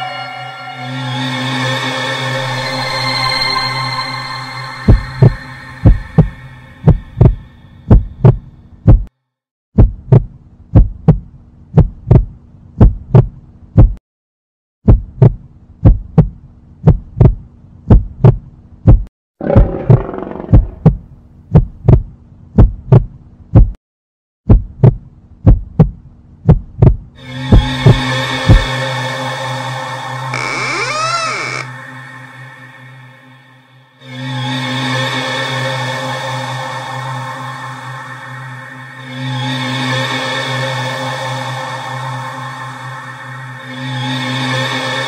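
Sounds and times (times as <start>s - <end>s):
heartbeat thuds: 4.9s - 9.1s, 9.8s - 14.0s, 14.9s - 19.7s, 20.5s - 23.8s, 24.5s - 28.7s.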